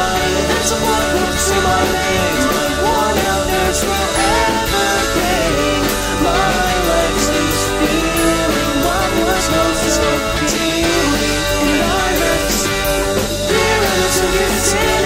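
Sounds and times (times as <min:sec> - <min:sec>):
rock music with full band: 0:00.0 - 0:15.0.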